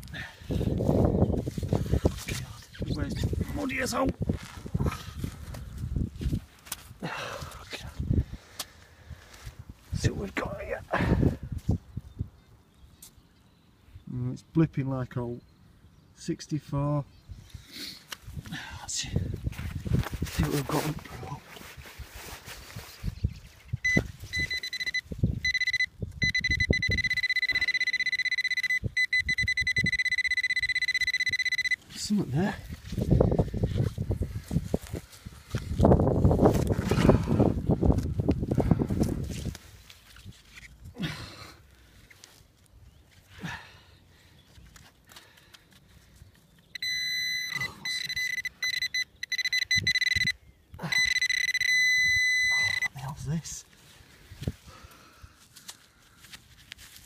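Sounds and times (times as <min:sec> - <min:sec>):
metal detector alert tone: 0:23.8 - 0:31.8, 0:46.7 - 0:53.0.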